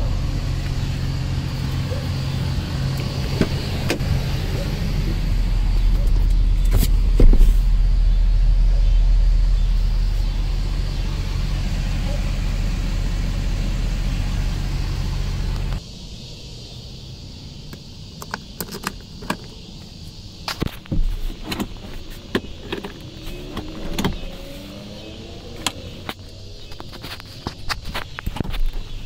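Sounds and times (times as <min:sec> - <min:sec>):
loud mechanical drone: 0:00.0 - 0:17.6, 0:22.8 - 0:26.8
handling clicks and knocks: 0:18.2 - 0:19.6, 0:20.5 - 0:24.3.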